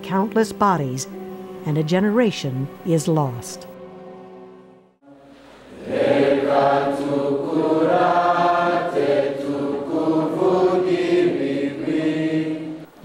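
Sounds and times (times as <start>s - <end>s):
choir singing: 5.0s - 13.0s.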